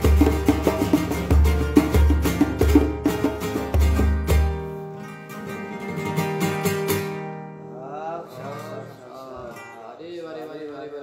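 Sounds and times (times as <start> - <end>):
acoustic guitar strumming: 0.0 - 11.0
man talking: 7.8 - 11.0.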